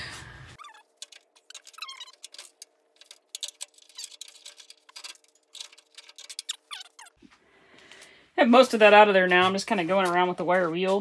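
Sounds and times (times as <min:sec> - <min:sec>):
short squeaks: 0:00.6 - 0:02.6, 0:05.6 - 0:07.2.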